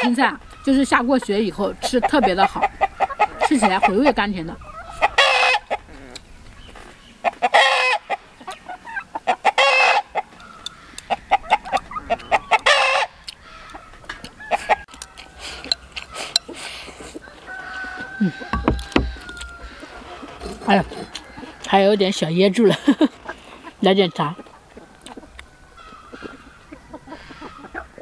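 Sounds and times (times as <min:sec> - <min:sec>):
chickens squawking: 0:00.0 - 0:28.0.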